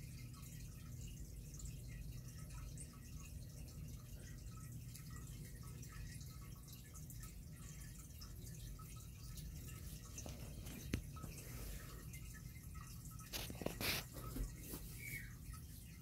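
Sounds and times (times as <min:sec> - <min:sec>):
water dripping and trickling: 0:00.0 - 0:16.0.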